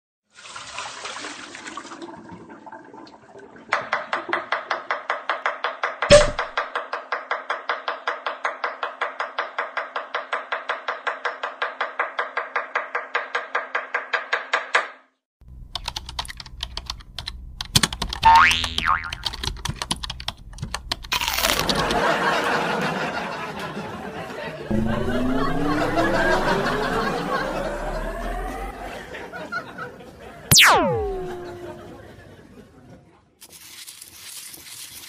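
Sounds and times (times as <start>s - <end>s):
sharp knock: 6.0s - 6.8s
short rising whistle: 30.5s - 31.9s.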